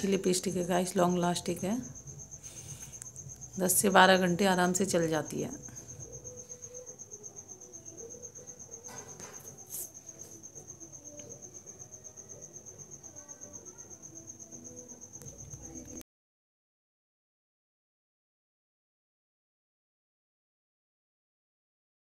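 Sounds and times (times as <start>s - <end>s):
cricket chirping trill: 0.0s - 16.0s.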